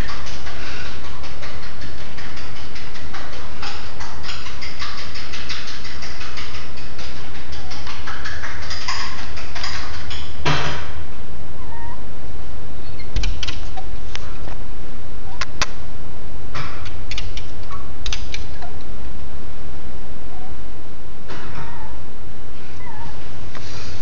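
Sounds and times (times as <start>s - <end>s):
dog whining: 11.5s - 12.2s, 20.2s - 20.7s, 21.3s - 23.5s.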